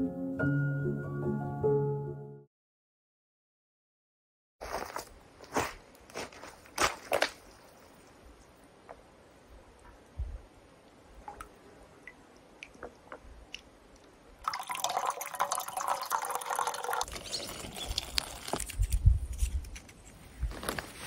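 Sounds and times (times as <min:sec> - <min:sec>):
water dripping: 0:10.8 - 0:18.6.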